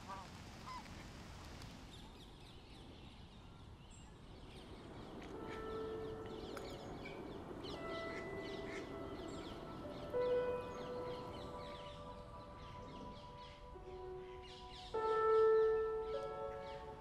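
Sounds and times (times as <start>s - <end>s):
birds chirping: 0.1s - 17.0s
soft music with held notes: 4.4s - 17.0s.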